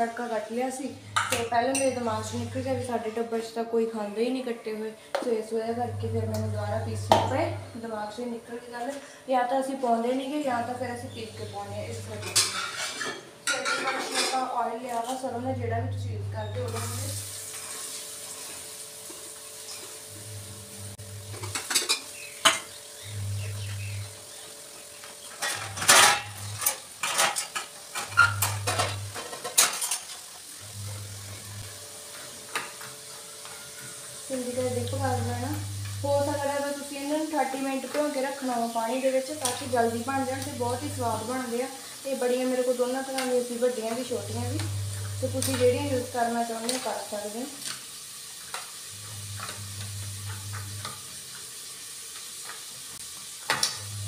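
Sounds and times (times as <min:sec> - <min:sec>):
onions sizzling in oil: 0:00.0 - 0:03.5, 0:05.8 - 0:54.0
steel utensils clinking: 0:01.1 - 0:02.7, 0:10.6 - 0:15.4, 0:25.2 - 0:30.3, 0:42.5 - 0:46.9.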